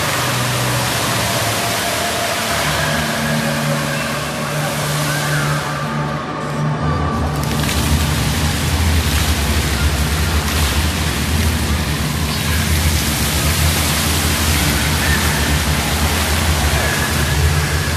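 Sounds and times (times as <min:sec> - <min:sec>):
fountain water splashing into pool: 0:00.0 - 0:06.0, 0:07.3 - 0:17.9
low hum: 0:00.0 - 0:17.9.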